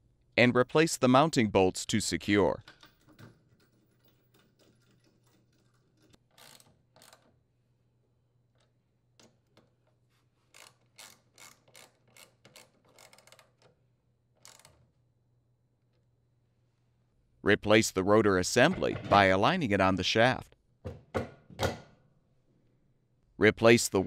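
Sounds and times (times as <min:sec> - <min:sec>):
ratchet clicking: 0:06.0 - 0:07.3, 0:10.5 - 0:13.7, 0:14.4 - 0:14.8.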